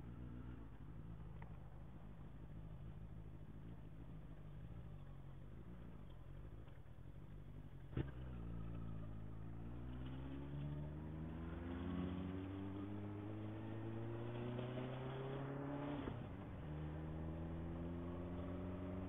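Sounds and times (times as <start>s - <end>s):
motorcycle engine running: 0.0s - 10.7s.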